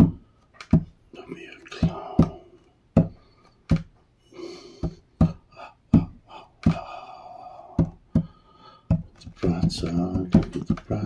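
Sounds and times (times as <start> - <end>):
wordless vocal sounds: 1.1 - 2.8, 4.3 - 11.0
hands drumming on tabletop: 1.8 - 4.0, 4.8 - 6.9, 7.8 - 10.9.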